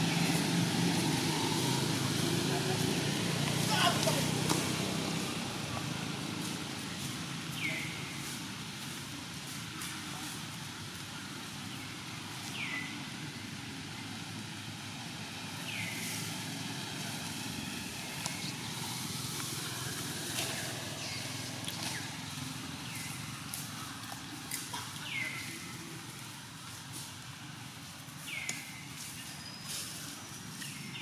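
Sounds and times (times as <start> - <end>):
distant traffic rumble: 0.0 - 31.0.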